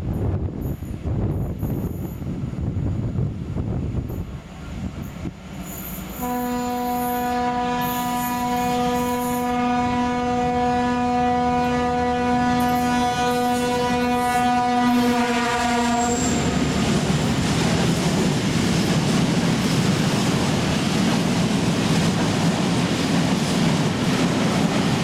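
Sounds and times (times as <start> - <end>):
locomotive horn blast: 6.1 - 16.8.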